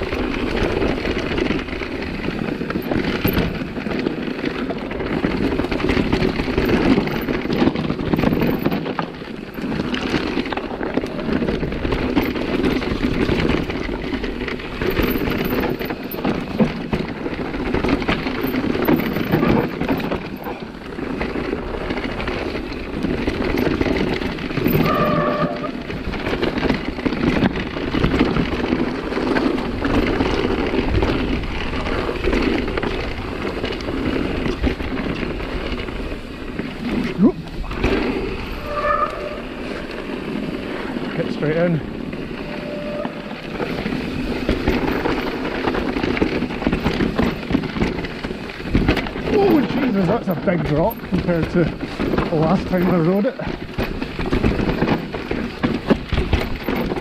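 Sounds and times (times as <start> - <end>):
bike rattling over bumps: 0.0 - 57.0
bike tyres rumbling on dirt trail: 0.0 - 57.0
brief squeal: 38.6 - 39.5, 42.4 - 43.4.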